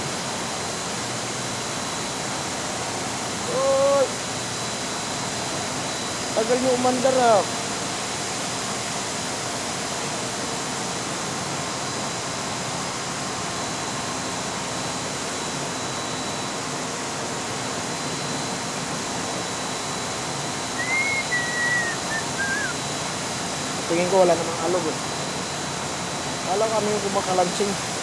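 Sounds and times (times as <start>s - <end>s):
condenser fans rushing air: 0.0s - 28.0s
faint steady whine: 0.0s - 28.0s
short whistle: 20.8s - 22.8s.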